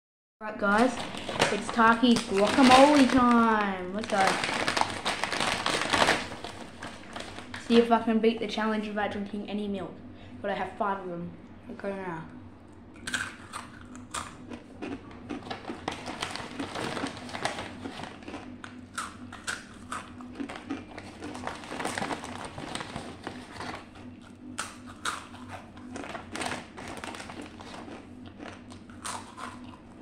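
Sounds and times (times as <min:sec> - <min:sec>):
faint steady hum: 0:00.4 - 0:30.0
tortilla chips crunching: 0:00.7 - 0:07.7, 0:13.0 - 0:30.0.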